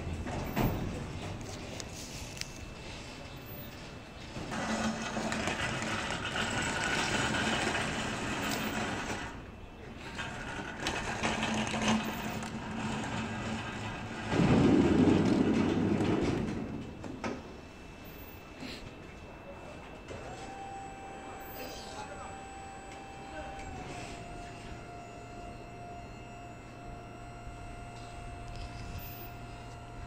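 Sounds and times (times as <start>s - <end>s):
pallet jack wheels rattling over metal: 4.3s - 9.4s, 10.0s - 17.0s.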